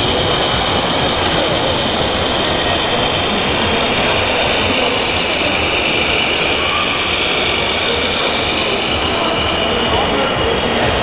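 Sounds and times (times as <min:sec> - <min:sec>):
simulated diesel engine sound: 0:00.0 - 0:11.0.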